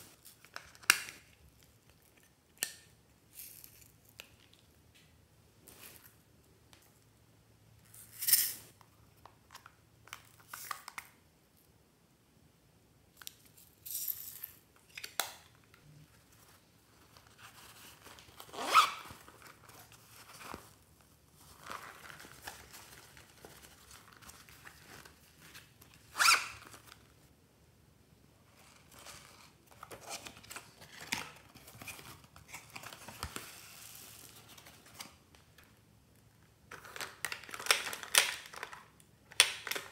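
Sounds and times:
soft crinkling: 0:13.2 - 0:27.3
packaging tearing and rustling: 0:36.7 - 0:38.8.

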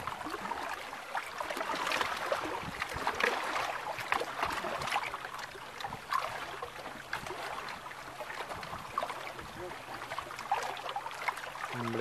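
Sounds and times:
waves lapping against boat hull: 0:00.0 - 0:12.0.

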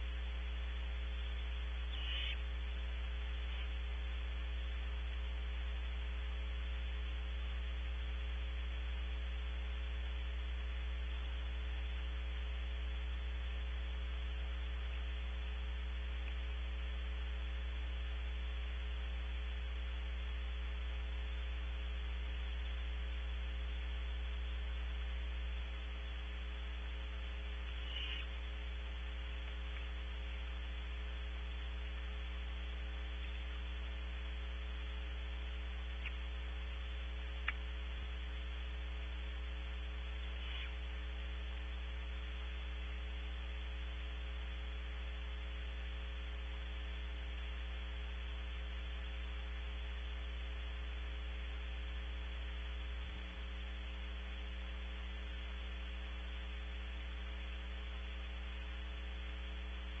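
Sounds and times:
electrical hum and hiss: 0:00.0 - 1:00.0
faint clicks: 0:16.2 - 0:16.5, 0:29.4 - 0:30.5, 0:35.8 - 0:36.3, 0:37.4 - 0:38.1.

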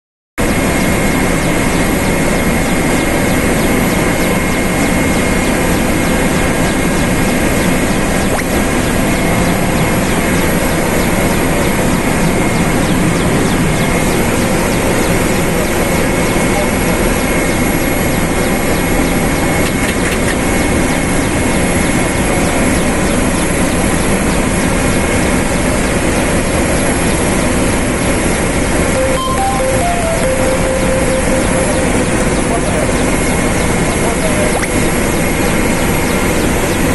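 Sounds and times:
helicopter engine and rotor noise: 0:00.4 - 0:36.9
high steady whine: 0:29.0 - 0:34.0.

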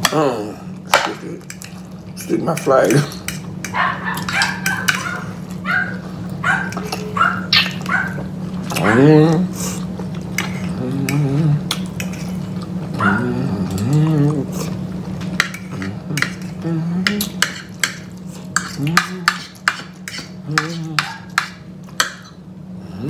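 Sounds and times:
low vocal sounds: 0:00.0 - 0:01.4, 0:08.7 - 0:09.9, 0:10.6 - 0:11.8, 0:13.0 - 0:14.8, 0:15.7 - 0:17.4
cutlery scraping on plates: 0:02.5 - 0:05.3, 0:06.5 - 0:07.9, 0:10.3 - 0:12.6, 0:15.2 - 0:22.4.

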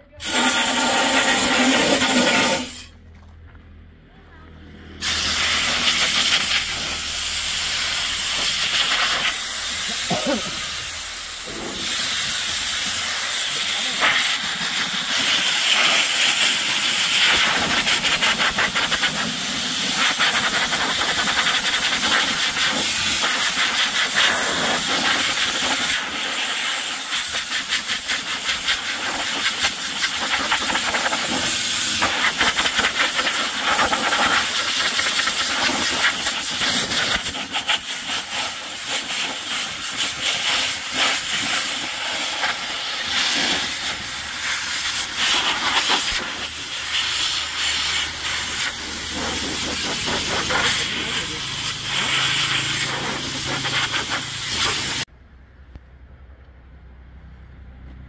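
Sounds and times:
compressed air hissing: 0:00.2 - 0:03.0, 0:05.0 - 0:55.1.

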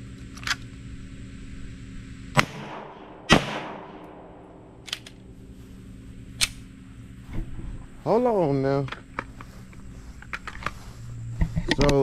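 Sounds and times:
pistol shots with echo: 0:02.4 - 0:04.4.

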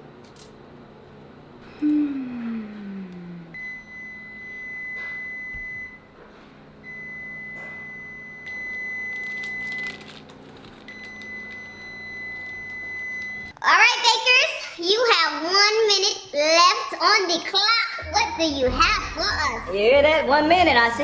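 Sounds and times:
electronic timer beeps: 0:03.6 - 0:06.0, 0:10.9 - 0:13.5.

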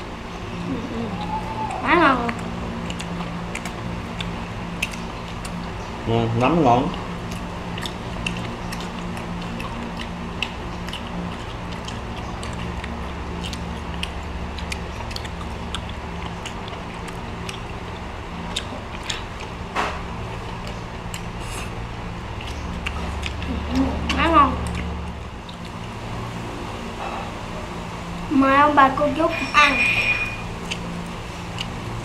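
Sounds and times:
people chewing: 0:00.0 - 0:27.6, 0:30.4 - 0:32.0
steady low hum: 0:00.0 - 0:32.0.

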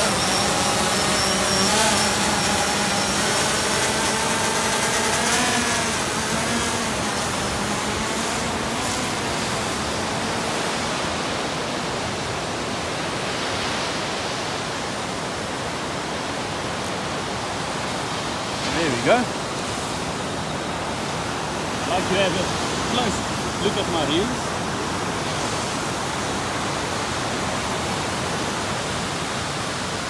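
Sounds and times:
drone propellers whining: 0:00.0 - 0:10.8
surf rushing: 0:00.0 - 0:30.0.

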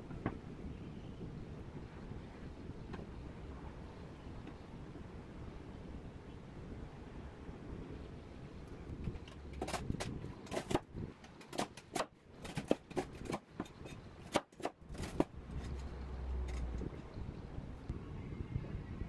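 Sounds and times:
cleaver chopping crisp bread: 0:09.6 - 0:10.8, 0:11.4 - 0:15.3.

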